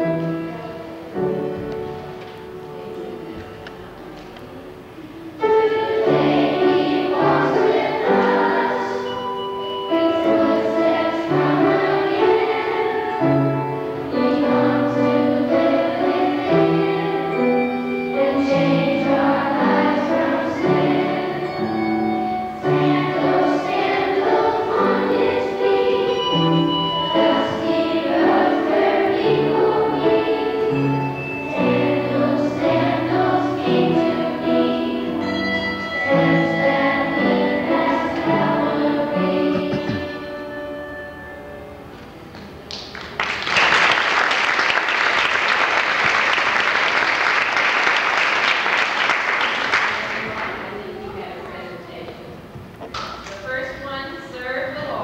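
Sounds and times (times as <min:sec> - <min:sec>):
children singing together: 0:05.4 - 0:40.8.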